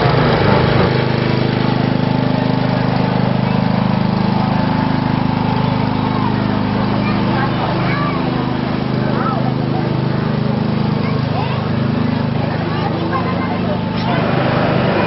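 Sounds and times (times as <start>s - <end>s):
small engine humming: 0.0s - 15.0s.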